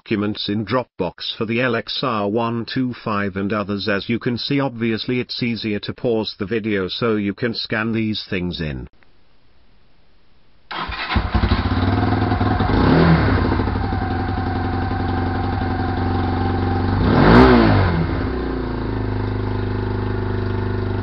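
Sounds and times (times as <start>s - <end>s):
motorcycle engine revving and idling: 10.7s - 21.0s.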